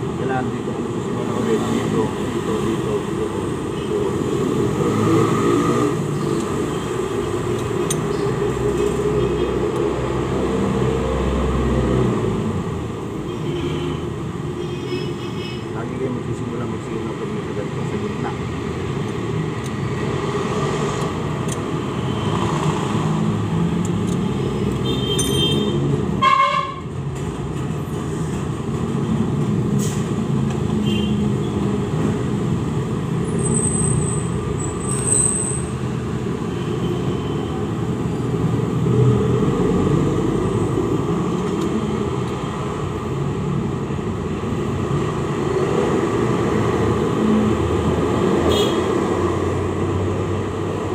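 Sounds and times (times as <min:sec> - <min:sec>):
road traffic rumble: 0:00.0 - 0:50.9
vehicle horn toot: 0:24.8 - 0:26.8, 0:48.5 - 0:48.9.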